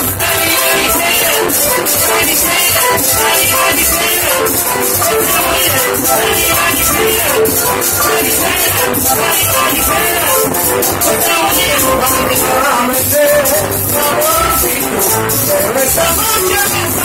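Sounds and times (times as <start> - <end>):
hand drums: 0.0 - 17.0
latin dance band playing: 0.0 - 17.0
saxophone: 0.0 - 17.0
shaker and drum beat: 0.0 - 17.0
vocals sung into microphones: 0.0 - 17.0.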